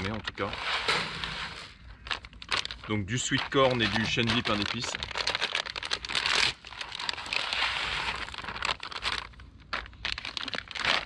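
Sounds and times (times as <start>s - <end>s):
plastic packets crinkling and tearing: 1.3s - 11.0s.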